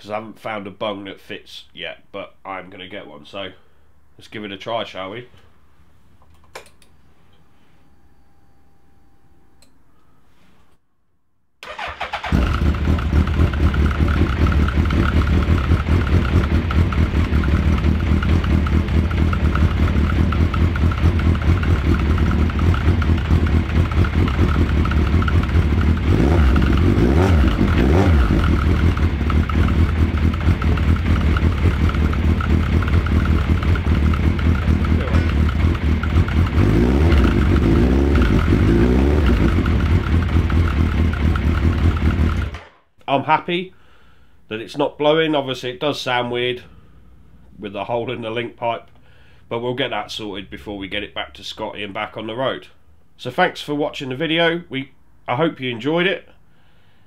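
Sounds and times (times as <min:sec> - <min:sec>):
motorcycle engine starting and idling: 0:11.6 - 0:42.8.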